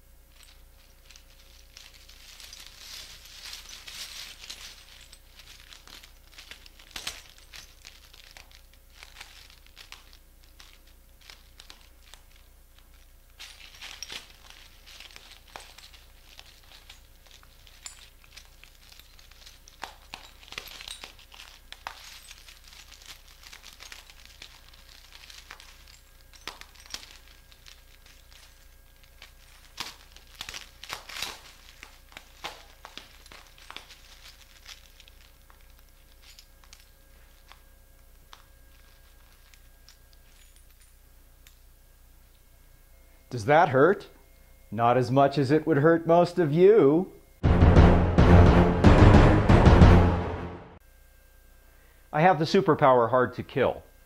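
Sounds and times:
glass crunching underfoot: 0:00.0 - 0:42.4.

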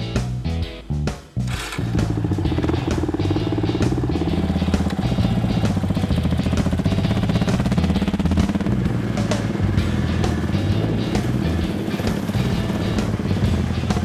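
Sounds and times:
electric starter cranking: 0:01.5 - 0:08.3
motorcycle engine idling: 0:01.5 - 0:14.0.

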